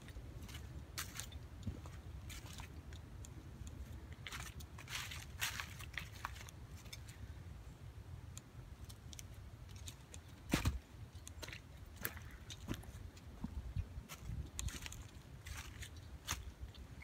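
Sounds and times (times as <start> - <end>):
footsteps crunching dry leaves: 0.4 - 2.9, 4.2 - 7.2, 11.4 - 17.0.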